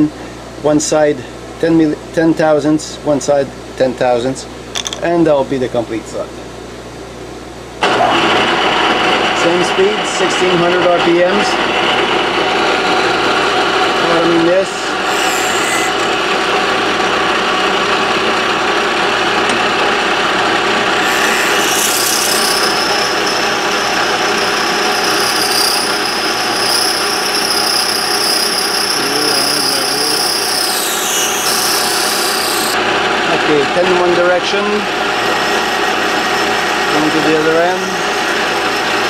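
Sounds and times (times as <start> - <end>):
high-pitched cutting whine: 12.6 - 17.1, 20.3 - 32.8
milling machine cutting metal: 12.7 - 16.9, 20.4 - 32.8.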